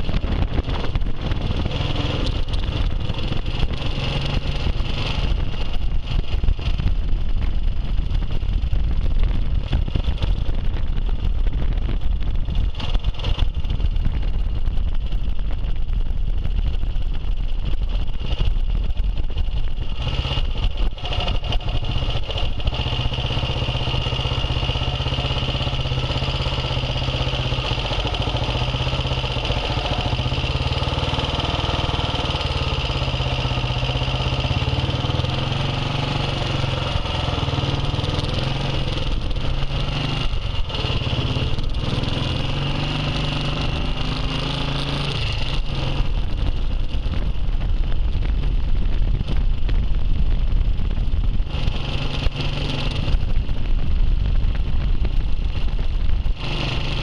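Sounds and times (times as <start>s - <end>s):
wind buffeting microphone: 0.0s - 32.1s, 33.0s - 57.0s
motorcycle engine running: 0.0s - 57.0s.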